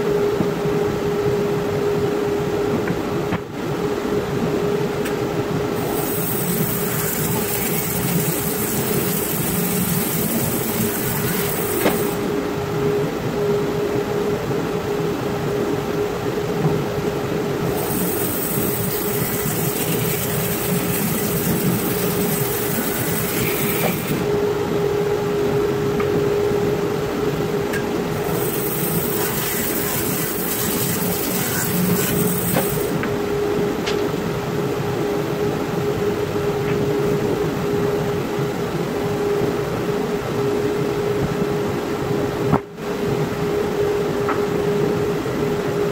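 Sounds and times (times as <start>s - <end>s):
bandsaw humming: 5.8s - 12.3s, 17.7s - 24.3s, 28.1s - 33.0s.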